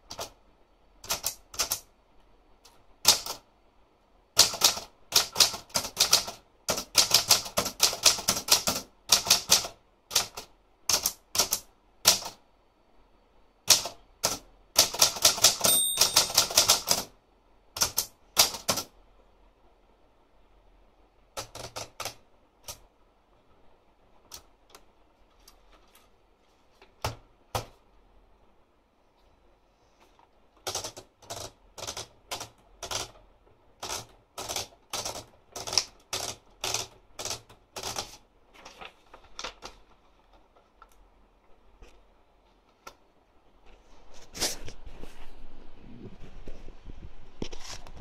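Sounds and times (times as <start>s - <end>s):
manual typewriter typing: 0.0s - 0.4s, 1.0s - 1.9s, 3.0s - 3.4s, 4.4s - 12.4s, 13.6s - 17.1s, 17.8s - 18.9s, 21.4s - 22.8s, 30.6s - 33.2s, 33.8s - 39.8s.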